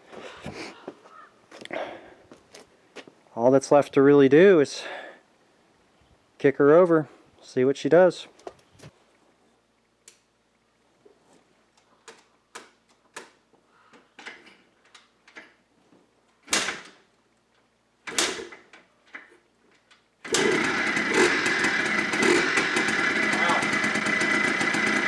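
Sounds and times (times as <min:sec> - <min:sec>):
engine kick-start clicks: 0:20.2 - 0:25.0
two-stroke engine running: 0:20.3 - 0:25.0.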